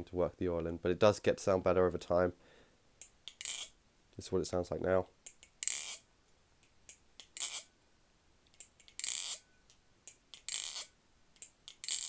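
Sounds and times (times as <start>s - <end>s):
butterfly knife metallic rattles: 10.3s - 12.0s.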